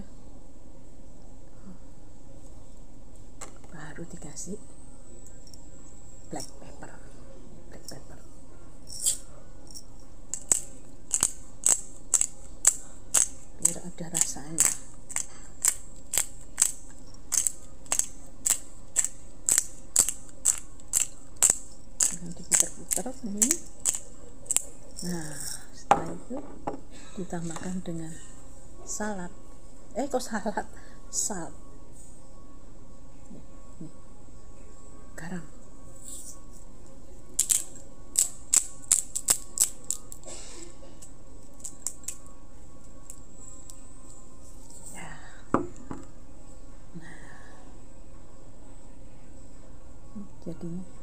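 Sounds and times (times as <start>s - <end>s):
pepper mill grinding clicks: 10.3s - 25.5s, 37.4s - 40.2s.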